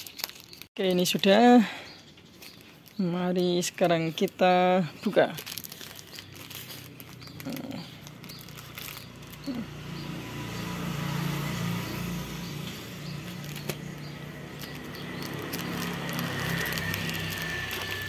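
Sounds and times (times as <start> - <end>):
vehicle engine passing: 6.6 - 18.0
fabric bag rustling and clicking: 13.2 - 18.0.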